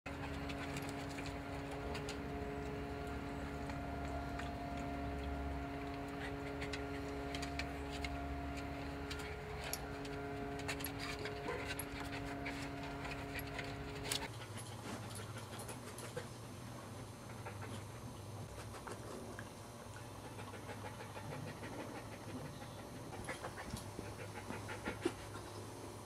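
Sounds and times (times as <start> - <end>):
steady machine hum: 0.1 - 14.4.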